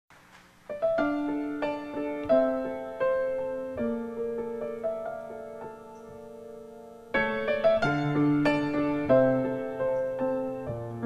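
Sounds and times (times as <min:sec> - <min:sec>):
slow piano chords and melody: 0:00.6 - 0:11.0.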